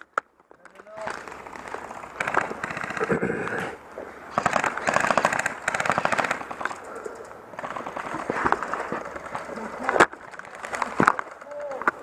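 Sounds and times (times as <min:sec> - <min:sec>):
airsoft rifle automatic fire: 0:02.2 - 0:03.2, 0:04.3 - 0:06.7, 0:07.6 - 0:08.2.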